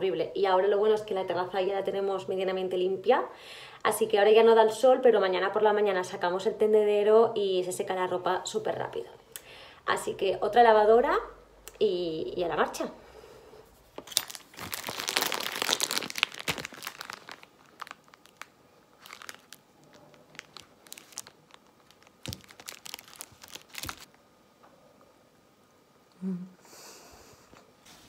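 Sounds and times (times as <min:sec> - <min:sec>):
plastic wrap crinkling: 0:13.9 - 0:24.2.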